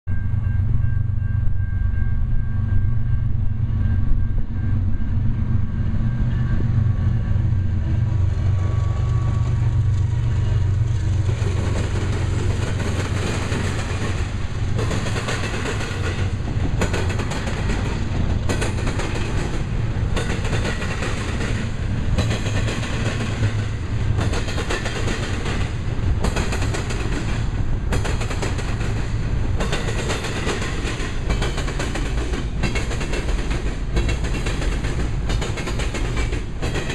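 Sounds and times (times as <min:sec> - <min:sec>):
diesel locomotive drone: 0:00.1 - 0:36.9
freight cars rumbling: 0:00.2 - 0:36.9
wheels clacking over rail joints: 0:08.2 - 0:36.9.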